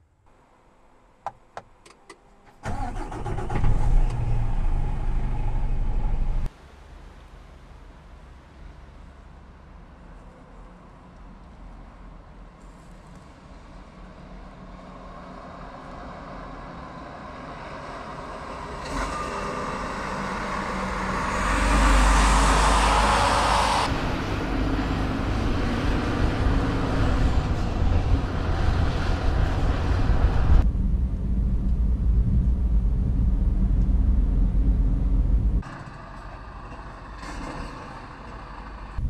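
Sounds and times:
truck driving past: 0:02.7 - 0:06.5, 0:15.0 - 0:39.0.

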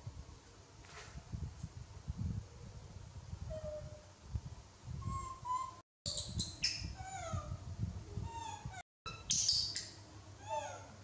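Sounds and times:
monkeys giving squeaky calls: 0:08.3 - 0:10.9.

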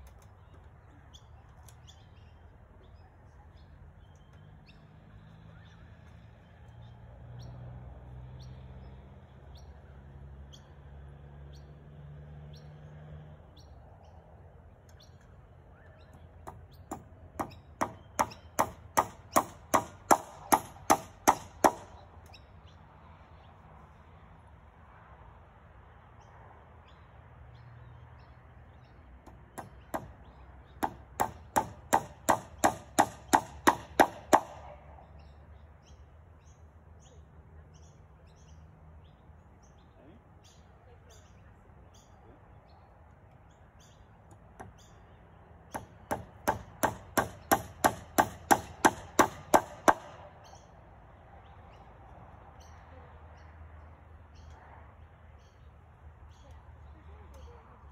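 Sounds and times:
hammer driving nails into wood: 0:16.4 - 0:21.9, 0:29.2 - 0:30.2, 0:30.8 - 0:34.6, 0:45.7 - 0:50.2.

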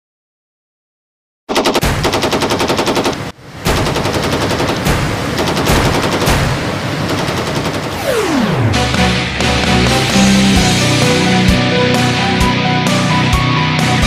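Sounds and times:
machine-gun fire: 0:01.5 - 0:08.8.

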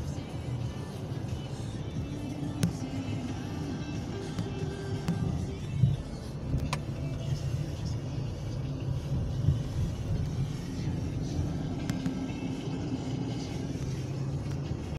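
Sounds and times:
car engine and road rumble: 0:00.0 - 0:14.9.

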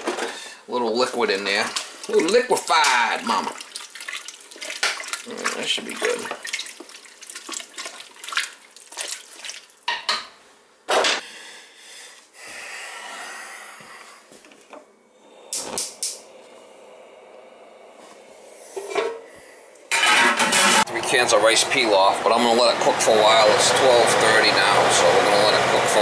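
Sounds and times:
liquid sloshing and dripping: 0:01.0 - 0:10.0.

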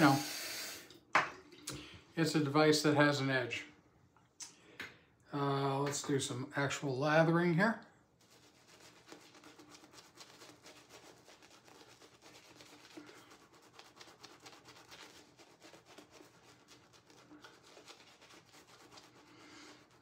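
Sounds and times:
shaving brush swishing lather: 0:08.2 - 0:20.0.

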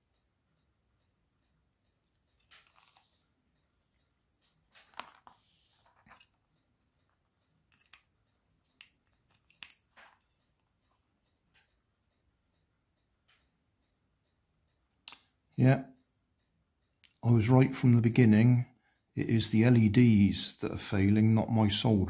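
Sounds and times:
faint clicks of small tools: 0:00.0 - 0:17.3
light scraping of parts: 0:04.7 - 0:06.4.

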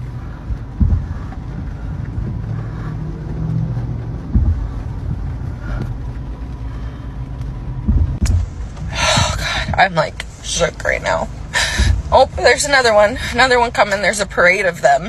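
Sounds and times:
dull thump: 0:00.0 - 0:06.0, 0:06.7 - 0:10.6, 0:11.6 - 0:13.6
trucks driving past: 0:00.0 - 0:15.0.

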